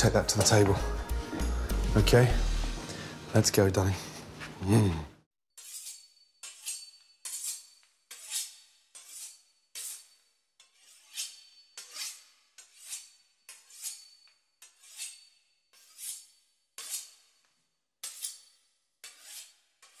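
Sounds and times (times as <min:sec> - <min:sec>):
knife sawing through pastry crust: 0:05.6 - 0:17.4, 0:18.0 - 0:20.0.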